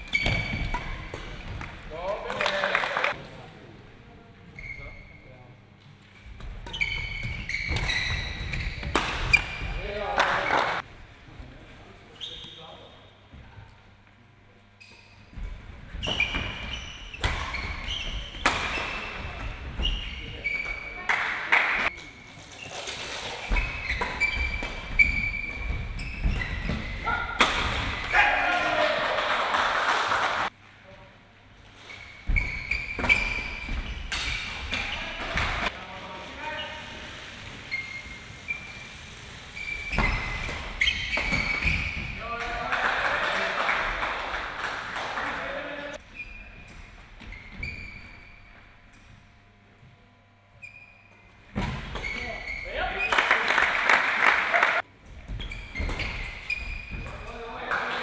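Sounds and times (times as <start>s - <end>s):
shoe squeaks on court: 0.0s - 1.1s, 4.6s - 5.3s, 6.6s - 9.8s, 16.0s - 21.0s, 22.0s - 27.2s, 31.8s - 34.0s, 37.6s - 42.1s, 46.1s - 48.5s, 50.6s - 53.2s, 55.3s - 57.2s.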